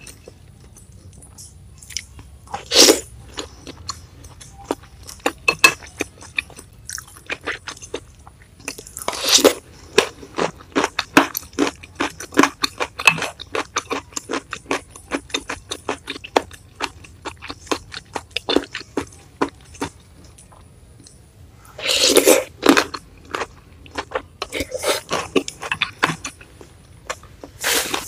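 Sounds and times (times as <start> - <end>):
loud slurp of noodles: 27.6 - 28.0.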